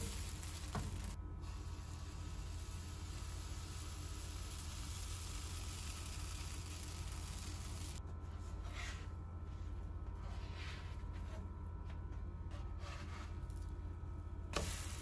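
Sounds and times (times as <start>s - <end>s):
batter sizzling in a pan: 0.0s - 8.0s, 14.6s - 15.0s
steady low hum: 0.0s - 15.0s.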